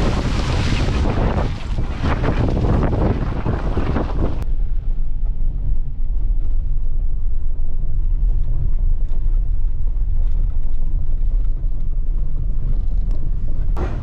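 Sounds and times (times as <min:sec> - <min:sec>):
tyre road noise: 0:00.0 - 0:14.0
engine rumble inside a truck: 0:04.2 - 0:14.0.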